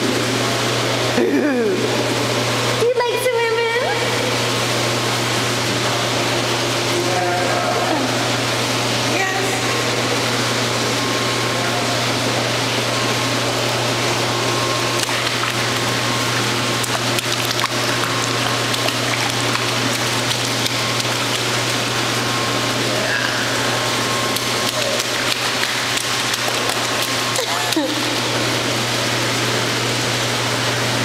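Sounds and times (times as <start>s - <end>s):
low hum and hiss: 0.0s - 31.0s
toddler splashing water: 14.8s - 28.4s.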